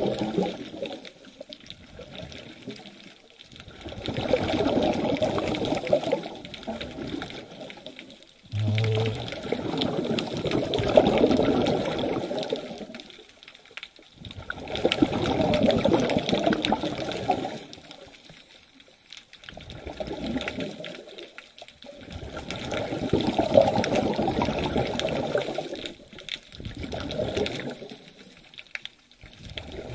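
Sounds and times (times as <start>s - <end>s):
underwater regulator bubbles: 0.0s - 18.4s, 19.4s - 29.9s
low hum: 8.5s - 9.6s.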